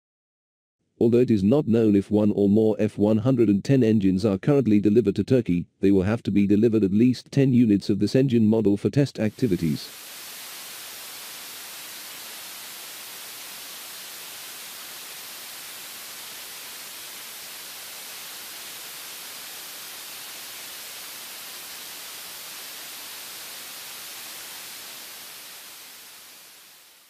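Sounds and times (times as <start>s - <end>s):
jet engine rushing hiss: 9.3s - 27.0s.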